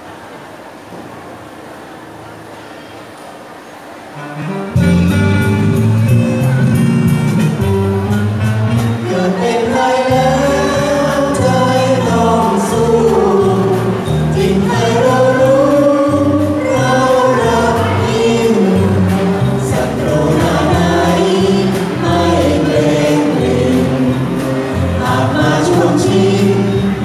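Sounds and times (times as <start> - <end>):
instrumental backing with bass line: 4.2 - 27.0
group singing into microphones: 9.0 - 27.0.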